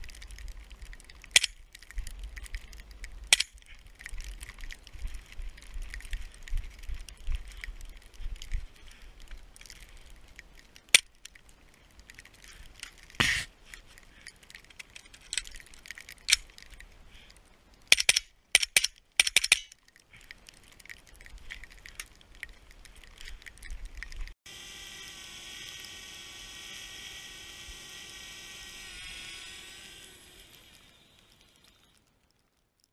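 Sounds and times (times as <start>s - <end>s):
drone propeller buzz: 24.5s - 31.6s.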